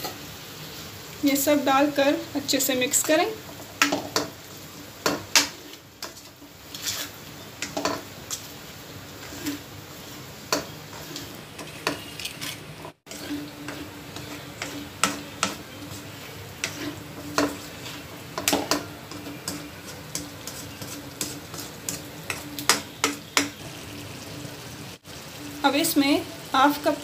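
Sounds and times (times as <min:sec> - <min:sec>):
chicken frying in oil: 0:00.0 - 0:27.0
spatula scraping a pan: 0:02.9 - 0:23.8.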